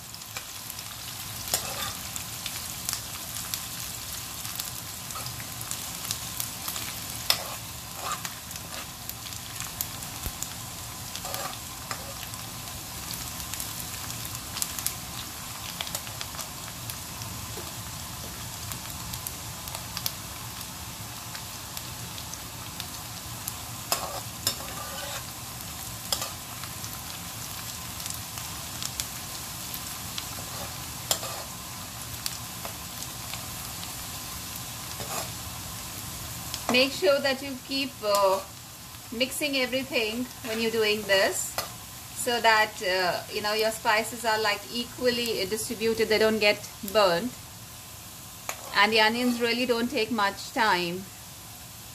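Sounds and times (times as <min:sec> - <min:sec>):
onions sizzling in hot oil: 0:00.0 - 0:51.9
metal spoon scraping a pan: 0:01.4 - 0:02.2, 0:05.1 - 0:05.4, 0:06.7 - 0:08.9, 0:11.1 - 0:12.3, 0:23.9 - 0:25.3, 0:26.1 - 0:26.4, 0:30.3 - 0:31.6, 0:34.9 - 0:35.4, 0:48.5 - 0:49.5.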